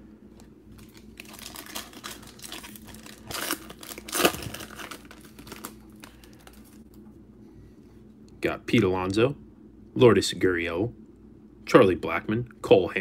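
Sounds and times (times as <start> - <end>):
foil wrapper crinkling and ripping: 0.7 - 6.9
wrapper handling: 0.7 - 7.0.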